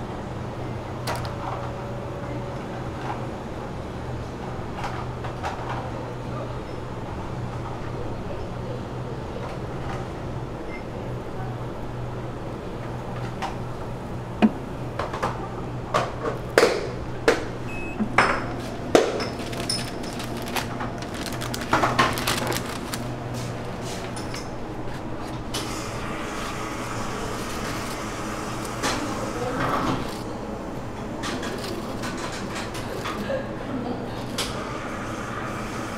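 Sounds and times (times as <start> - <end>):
low hum of kitchen equipment: 0.0 - 35.9
utensils and containers clinking: 18.1 - 25.7.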